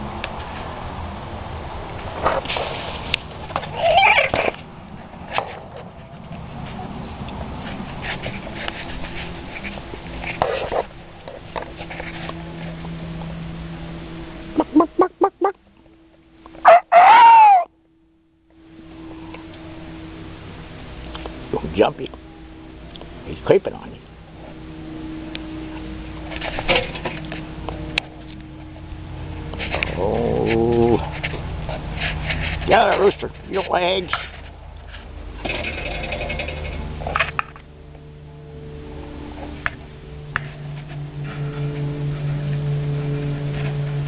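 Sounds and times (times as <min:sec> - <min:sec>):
steady low hum: 0:00.0 - 0:16.7, 0:17.7 - 0:44.0
chickens clucking: 0:14.5 - 0:15.6
rooster crowing: 0:16.6 - 0:17.7.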